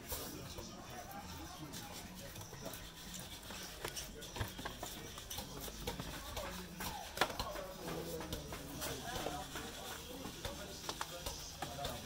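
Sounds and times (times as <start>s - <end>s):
faint background voices: 0.0s - 12.0s
sharp knocks and taps: 3.8s - 12.0s.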